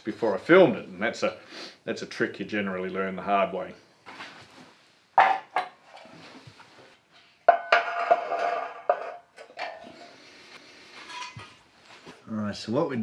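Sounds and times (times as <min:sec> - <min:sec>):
steel panels clanking on concrete: 0:07.5 - 0:10.0.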